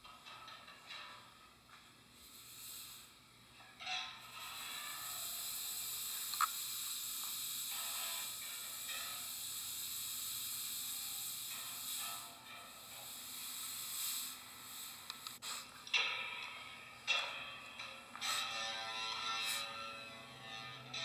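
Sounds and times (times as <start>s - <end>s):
steady hiss: 0.7s - 15.8s.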